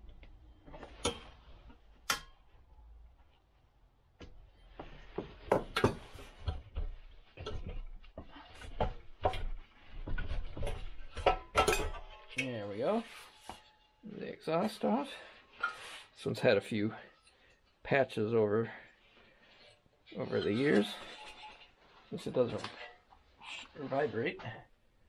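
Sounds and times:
metal knocks and scraping: 4.9 - 14.0, 19.5 - 23.6.

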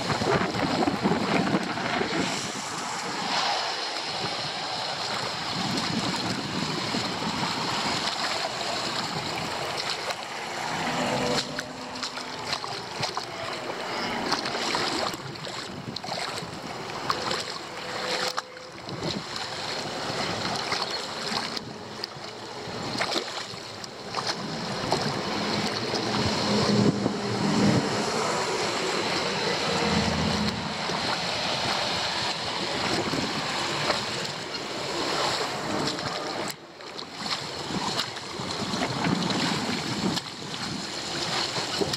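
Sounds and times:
water sloshing and splashing: 0.0 - 41.9
wind buffeting microphone: 0.0 - 41.9.

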